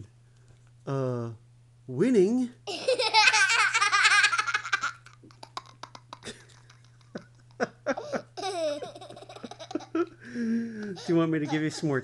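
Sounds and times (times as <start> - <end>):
faint clicks and breaths: 0.2 - 0.9, 10.2 - 11.2
young child giggling: 2.7 - 10.2, 10.8 - 12.0.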